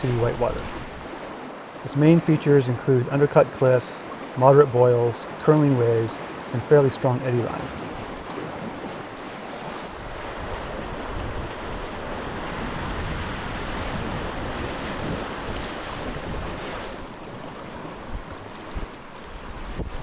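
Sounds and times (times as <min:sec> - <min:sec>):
rushing whitewater: 0:00.0 - 0:20.0
wind buffeting microphone: 0:07.8 - 0:20.0.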